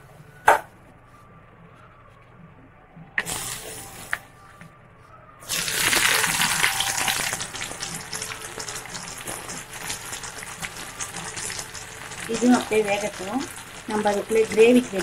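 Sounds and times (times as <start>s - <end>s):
potatoes sizzling in hot oil: 5.5s - 15.0s.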